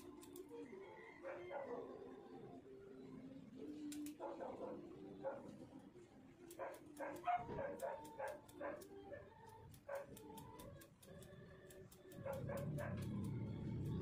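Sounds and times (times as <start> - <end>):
scissors snipping hair: 0.0 - 0.6, 3.8 - 4.3, 6.4 - 14.0.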